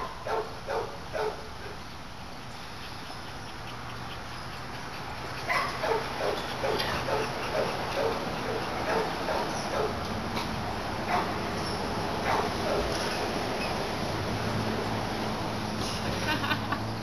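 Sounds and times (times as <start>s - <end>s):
dogs barking: 0.0s - 1.8s, 2.8s - 10.0s, 11.0s - 13.0s.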